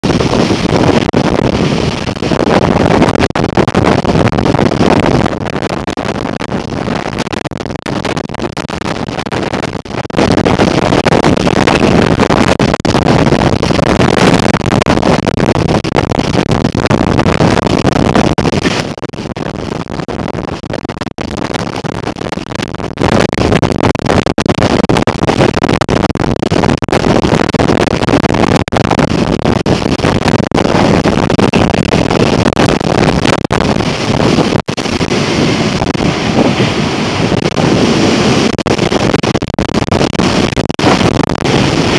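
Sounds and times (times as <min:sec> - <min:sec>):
storm wind buffeting microphone: 0:00.0 - 0:41.9.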